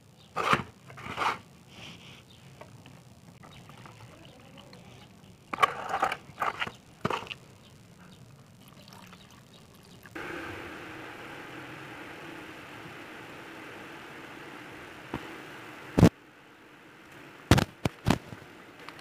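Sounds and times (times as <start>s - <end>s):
steady rushing noise: 10.2s - 19.0s.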